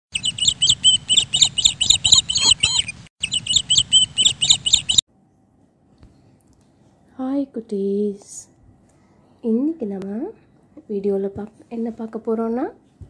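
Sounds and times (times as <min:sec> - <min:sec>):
small bird chirping: 0:00.1 - 0:05.0.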